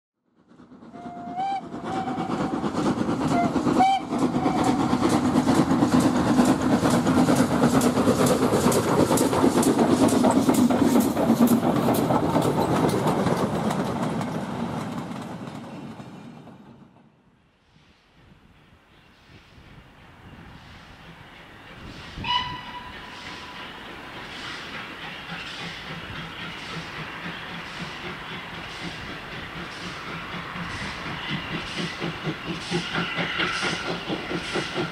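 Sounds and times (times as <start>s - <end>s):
train running past: 0.3s - 34.9s
steam locomotive whistle toots: 0.9s - 5.0s, 22.2s - 23.8s.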